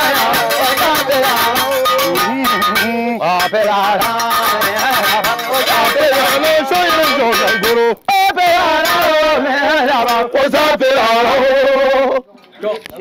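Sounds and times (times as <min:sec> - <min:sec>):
shaken rattles: 0:00.0 - 0:07.9
balafon strikes: 0:00.0 - 0:08.0
person singing: 0:00.0 - 0:12.3.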